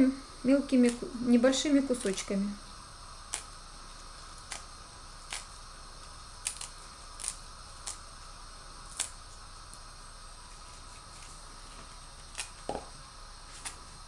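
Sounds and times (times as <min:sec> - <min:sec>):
steady background hiss: 0:00.0 - 0:14.0
lettuce leaves tearing: 0:01.9 - 0:02.3, 0:03.3 - 0:03.5, 0:04.4 - 0:05.6, 0:06.4 - 0:08.1, 0:08.9 - 0:09.4, 0:10.5 - 0:12.8, 0:13.5 - 0:13.9.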